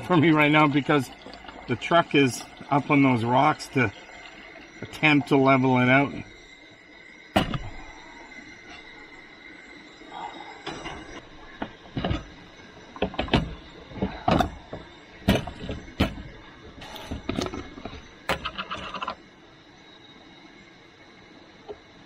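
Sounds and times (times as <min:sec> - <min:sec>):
camp gear knocking and clanking: 0:07.4 - 0:09.0, 0:10.1 - 0:19.2.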